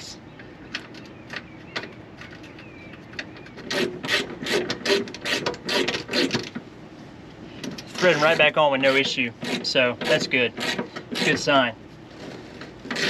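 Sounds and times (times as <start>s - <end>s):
rasping ratcheting strokes: 3.6s - 6.6s, 7.8s - 11.5s.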